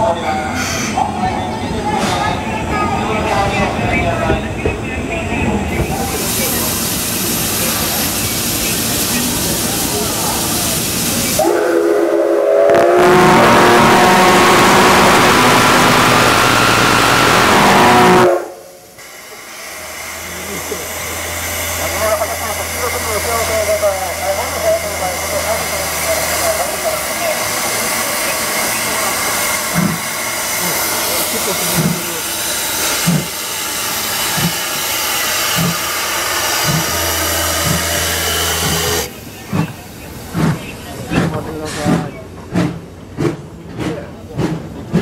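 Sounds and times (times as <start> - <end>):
steam hissing: 5.8 - 42.7
steam locomotive whistle: 11.2 - 18.9, 32.9 - 39.1
low locomotive thuds: 27.0 - 30.6, 31.6 - 33.5, 35.4 - 45.0.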